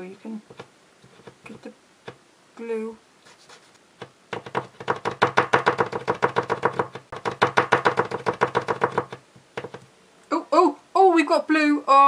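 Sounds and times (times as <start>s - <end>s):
glue pen tip knocking on paper: 4.0s - 9.8s.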